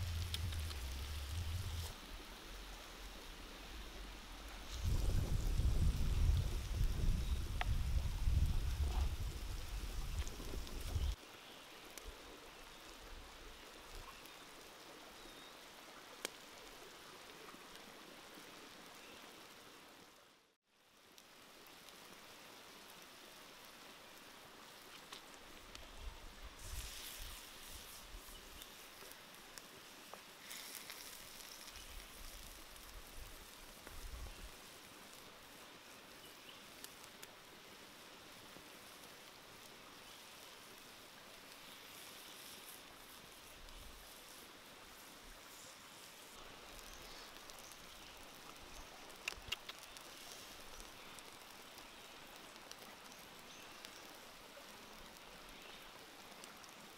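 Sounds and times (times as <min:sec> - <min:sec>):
low rumbles: 0:00.0 - 0:02.0
pot simmering bubbling: 0:00.0 - 0:02.0
curry simmering hiss: 0:00.0 - 0:56.9
faint crackles: 0:00.0 - 0:56.9.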